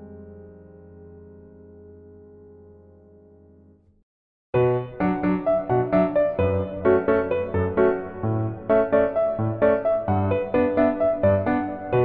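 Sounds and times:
background piano music: 4.6 - 12.0.

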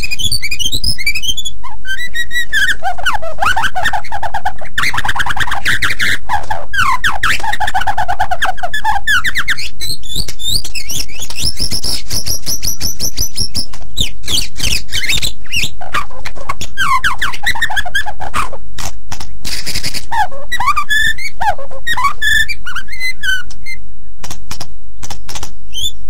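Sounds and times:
bird singing whistled notes and trills: 0.0 - 18.6, 19.5 - 24.2, 25.0 - 26.0.

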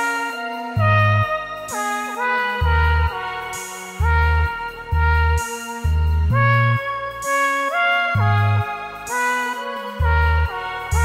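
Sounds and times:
sustained chords: 0.0 - 11.0
deep bass: 0.8 - 1.8, 2.6 - 7.4, 8.1 - 9.1, 10.0 - 11.0.

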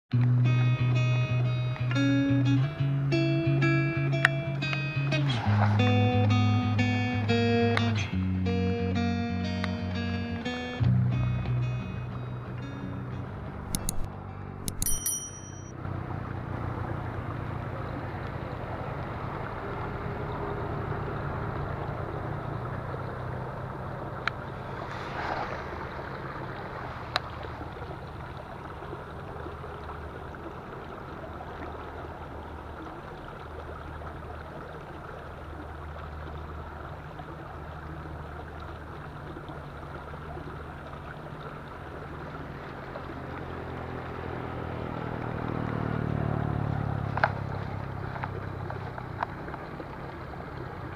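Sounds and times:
engine humming: 0.1 - 32.8, 36.5 - 50.9
sharp clicks: 13.7 - 15.7.

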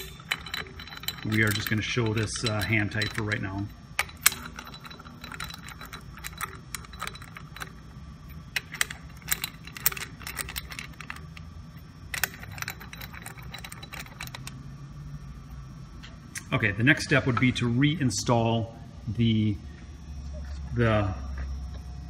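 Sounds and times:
metallic clicks and clinks: 0.0 - 11.5, 12.1 - 14.6.

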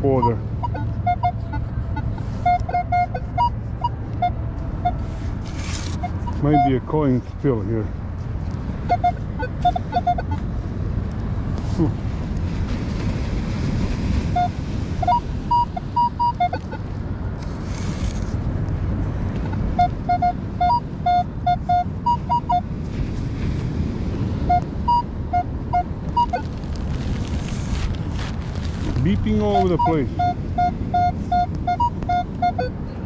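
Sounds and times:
metal detector beeping: 0.0 - 1.6, 2.3 - 5.0, 5.6 - 6.9, 8.9 - 10.4, 14.4 - 16.8, 19.5 - 22.6, 24.5 - 26.5, 29.1 - 32.9.

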